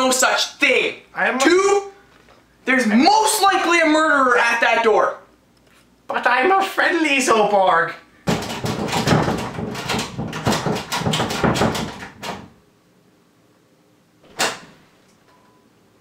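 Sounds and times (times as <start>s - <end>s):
pounding on wooden door: 8.2s - 12.6s.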